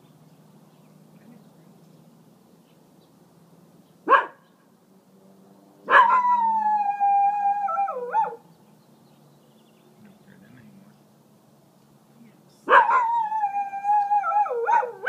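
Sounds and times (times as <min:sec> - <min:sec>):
small dog barking: 0:04.1 - 0:04.5, 0:05.9 - 0:06.4, 0:08.0 - 0:08.4, 0:12.6 - 0:13.2, 0:14.4 - 0:15.0
dog howling: 0:05.9 - 0:08.4, 0:12.7 - 0:15.0.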